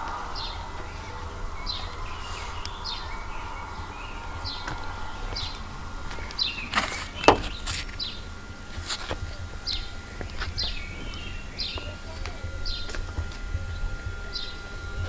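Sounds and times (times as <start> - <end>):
bird calling with falling chirps: 0.0 - 8.7
low steady rumble: 0.0 - 15.0
sharp knocks: 6.7 - 7.7.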